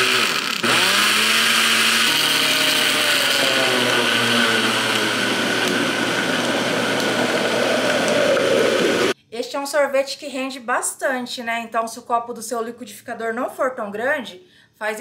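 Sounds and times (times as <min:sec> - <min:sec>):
electric blender running: 0:00.0 - 0:09.2.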